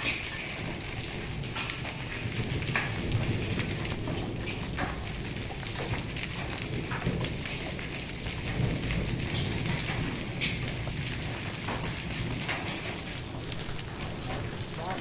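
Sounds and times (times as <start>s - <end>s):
hailstones hitting: 0.0s - 15.0s
heavy rain on concrete: 0.0s - 15.0s.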